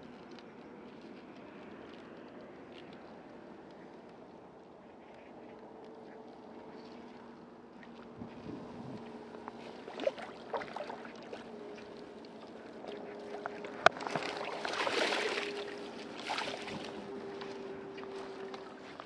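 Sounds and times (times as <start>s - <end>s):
fish splashing in shallow water: 9.0s - 19.0s.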